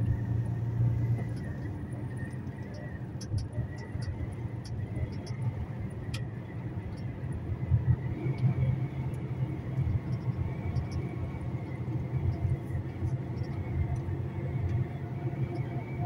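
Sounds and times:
truck engine and road rumble: 0:00.0 - 0:16.0.

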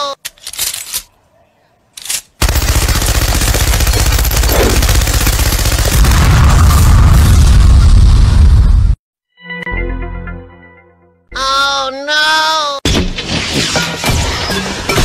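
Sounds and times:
machine gun firing rapidly: 0:02.4 - 0:06.8.

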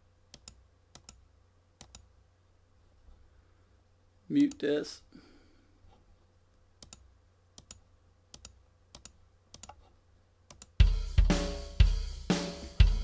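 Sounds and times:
computer mouse clicks: 0:00.3 - 0:01.2, 0:01.8 - 0:02.1, 0:06.8 - 0:09.9, 0:10.5 - 0:10.8
sampled drum kit playing: 0:10.8 - 0:13.0.

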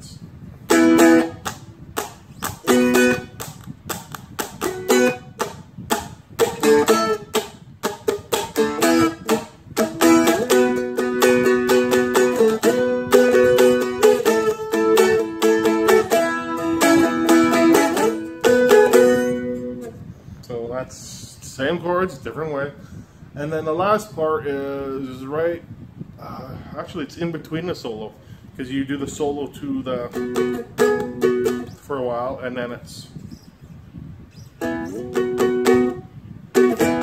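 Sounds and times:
dulcimer strummed: 0:07.9 - 0:19.9.

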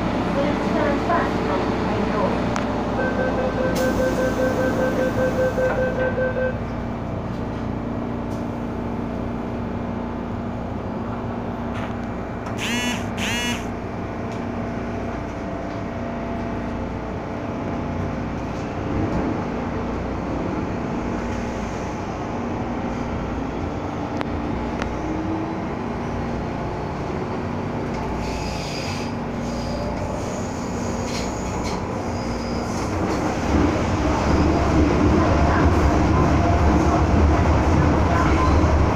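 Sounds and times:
train rumble and motor hum: 0:00.0 - 0:38.9
door warning beeps: 0:03.0 - 0:06.6, 0:12.6 - 0:13.7
short high squeals: 0:12.6 - 0:13.7.

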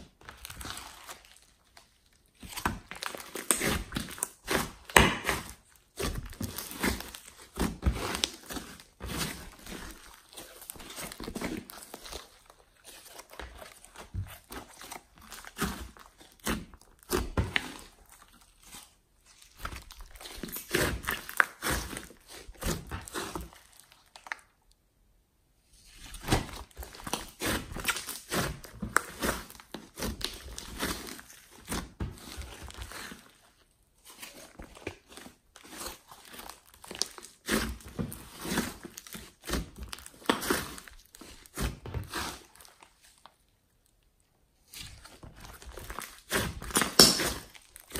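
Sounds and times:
slime squelching by hand: 0:00.0 - 0:24.8, 0:25.6 - 0:47.9.

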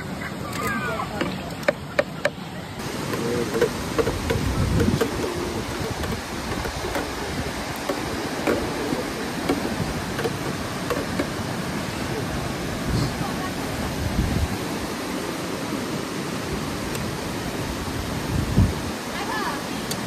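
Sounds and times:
water rushing over rocks: 0:00.0 - 0:20.0
light clicks and knocks: 0:00.5 - 0:11.4.

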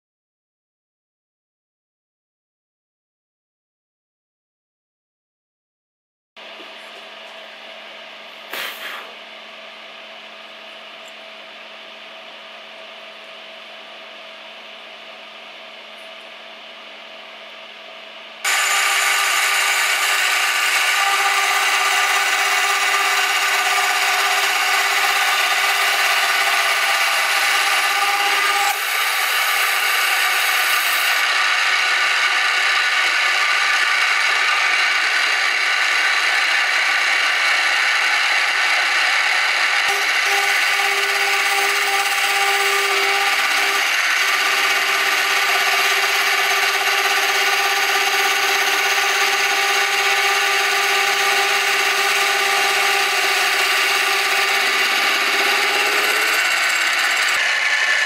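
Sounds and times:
saw cutting metal: 0:18.4 - 0:58.0
milling machine running: 0:18.5 - 0:58.0.

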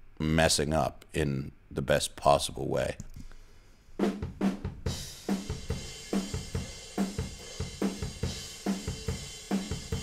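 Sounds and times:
cymbals and hi-hat: 0:04.0 - 0:10.0.

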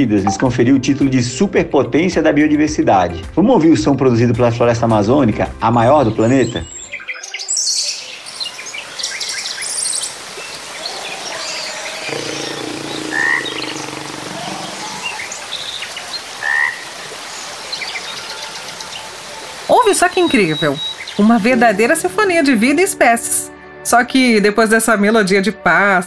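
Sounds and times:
birds calling: 0:06.1 - 0:22.0
wildlife chorus: 0:06.5 - 0:22.0
low droning call: 0:11.3 - 0:15.5.

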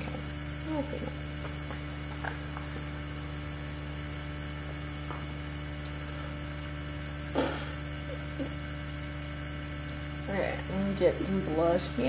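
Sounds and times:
electrical mains hum: 0:00.0 - 0:12.0
constant hiss: 0:09.8 - 0:12.0.

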